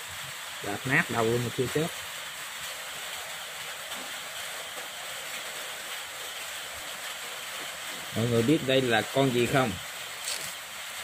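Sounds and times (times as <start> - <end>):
steady background hiss: 0.0 - 11.0.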